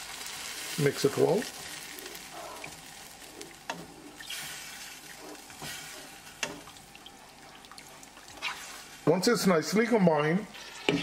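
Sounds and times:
light sizzle: 0.0 - 11.0
wooden spatula stirring sauce: 1.4 - 9.1.

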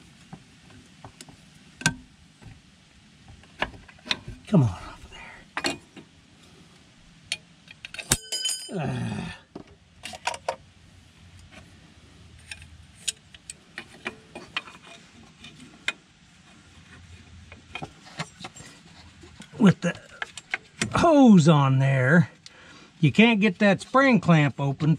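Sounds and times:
sharp ringing clink: 8.0 - 8.9.

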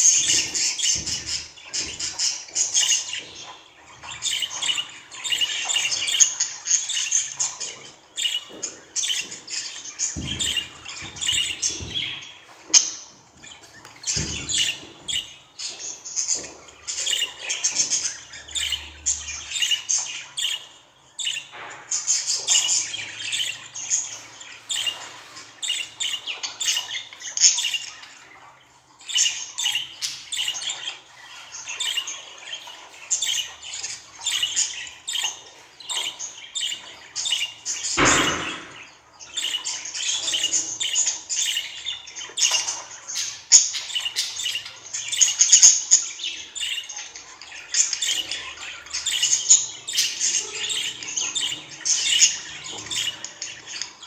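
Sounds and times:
budgerigars chirping and squawking: 0.0 - 54.0
thump: 38.0 - 38.8.

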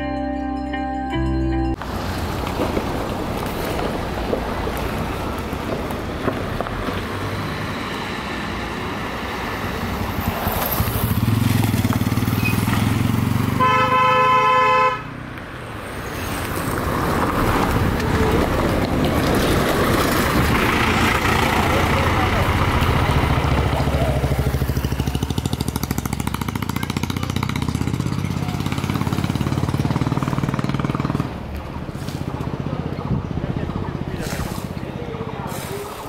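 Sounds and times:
vehicle engines passing: 0.0 - 36.0
vehicle horn: 13.6 - 15.2
low engine rumble: 17.4 - 36.0.

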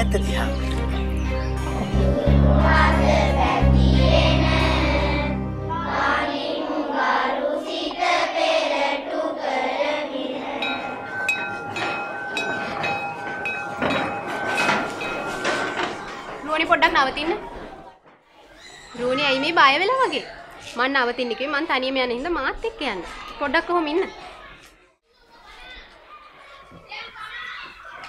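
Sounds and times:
deep bass line: 0.0 - 5.7
repeated instrumental notes: 0.0 - 8.1, 9.7 - 17.6
children singing together: 1.5 - 13.4.

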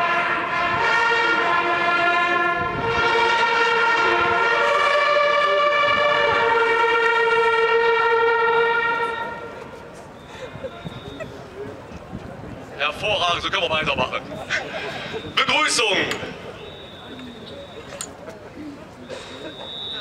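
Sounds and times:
hunting horns playing chords: 0.0 - 9.8.

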